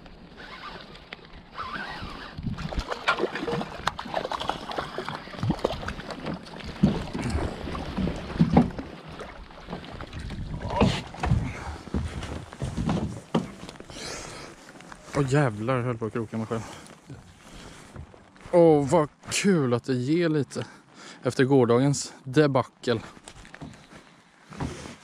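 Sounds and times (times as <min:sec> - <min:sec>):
water: 0:00.0 - 0:25.0
wind: 0:00.0 - 0:25.0
knocks and thumps on boat: 0:02.4 - 0:13.9.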